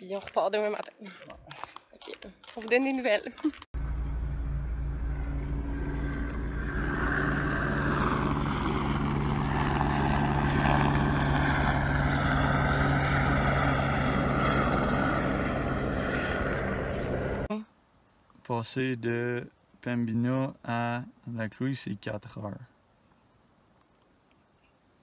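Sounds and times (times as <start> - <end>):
helicopter rotor and engine drone: 3.8 - 17.5.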